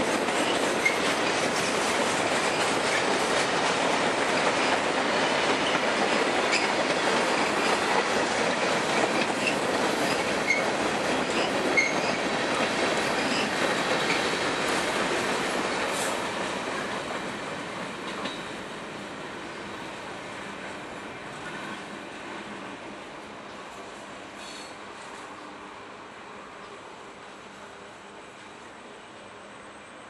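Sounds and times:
train wheels rumbling on rail: 0.0s - 30.0s
high wheel squeaks: 9.3s - 12.3s.

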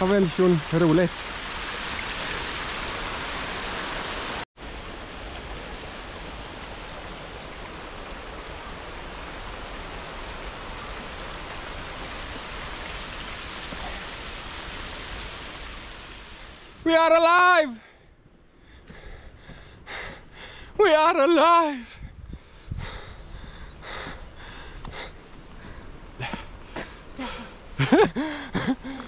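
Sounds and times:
stream water rushing: 0.0s - 17.6s.

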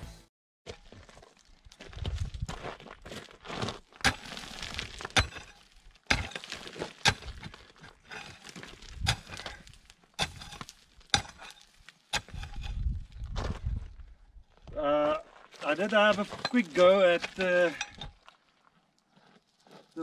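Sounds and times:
stones and gravel scraping: 0.7s - 20.0s
pickaxe striking rocky ground: 3.6s - 13.8s, 15.7s - 18.2s.

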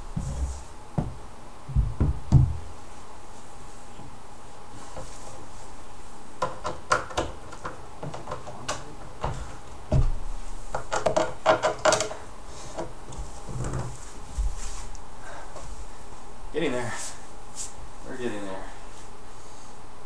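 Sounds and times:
furniture panels knocking and clattering: 0.0s - 2.7s, 6.4s - 14.6s.

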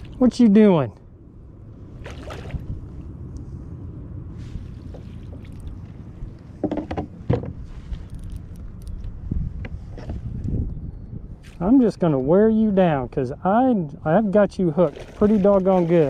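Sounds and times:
water splashing and lapping: 0.0s - 0.4s, 1.8s - 6.6s, 14.6s - 16.0s
steady low rumble: 0.0s - 15.9s.

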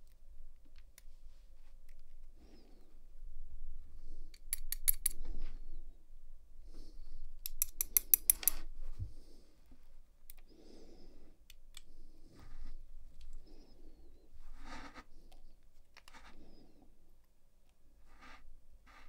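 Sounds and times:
small metallic clicks of lock pins: 4.3s - 5.2s, 7.4s - 8.7s
soft handling rustle: 12.0s - 16.8s.

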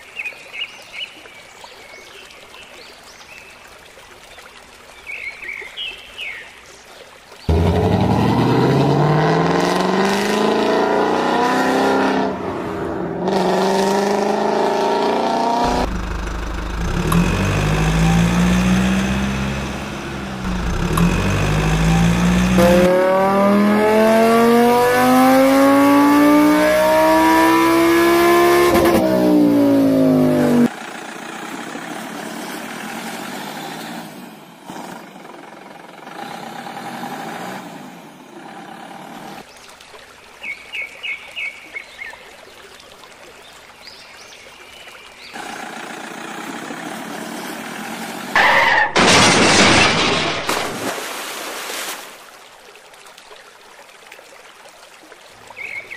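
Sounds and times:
car engine revving: 7.5s - 30.7s.

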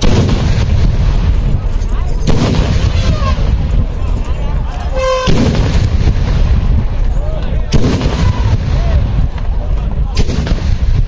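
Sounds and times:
cannon blasts: 0.0s - 3.8s, 5.0s - 7.0s, 7.6s - 9.4s, 10.1s - 11.0s
steady low rumble: 0.0s - 11.0s.

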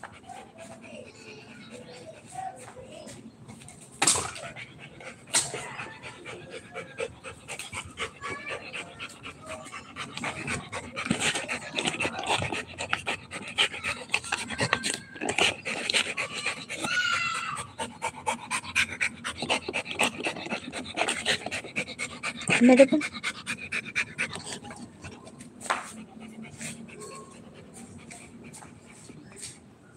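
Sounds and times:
dog panting hard: 0.0s - 2.6s, 4.2s - 29.6s
teeth clicking on rubber toy: 9.8s - 17.2s.

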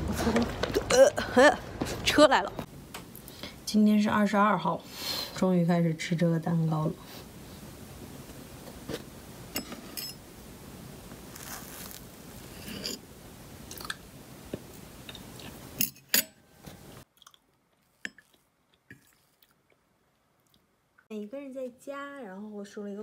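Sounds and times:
chewing: 17.0s - 20.7s.

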